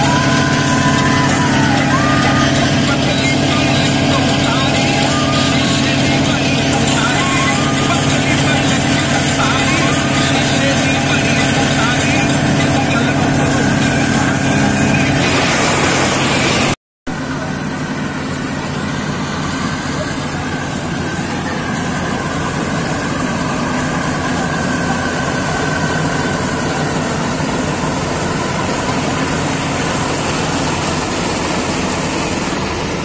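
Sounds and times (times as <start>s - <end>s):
combine harvester engine drone: 0.0s - 33.0s
cutting and threshing machinery: 0.0s - 33.0s.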